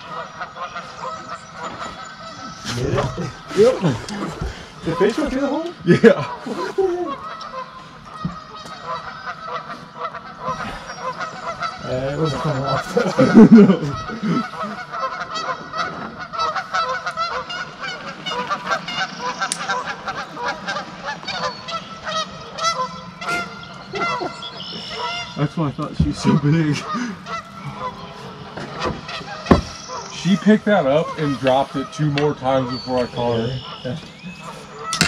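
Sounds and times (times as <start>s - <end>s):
geese honking: 0.0s - 35.0s.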